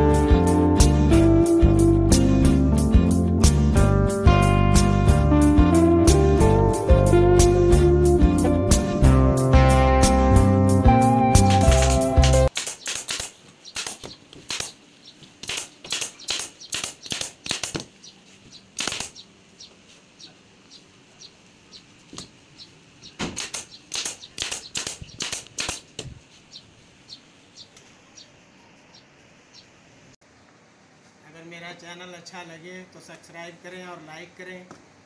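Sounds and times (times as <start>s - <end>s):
sharp knocks and clicks: 11.5s - 14.8s, 15.4s - 18.0s, 23.1s - 26.2s.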